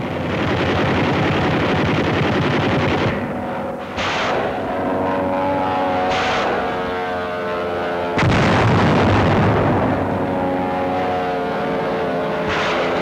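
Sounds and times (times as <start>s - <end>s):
aircraft engine drone: 0.0s - 13.0s
machine-gun fire: 0.2s - 3.3s, 3.9s - 4.7s, 8.2s - 9.8s, 12.4s - 13.0s.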